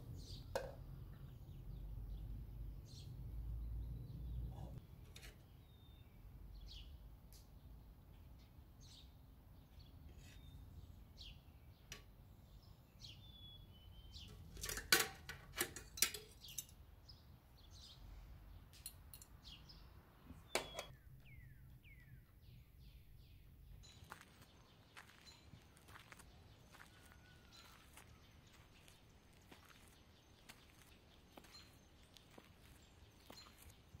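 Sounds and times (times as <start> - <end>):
small birds chirping: 0.0 - 14.8, 15.8 - 34.0
cutlery clinking on metal plate: 14.6 - 16.7.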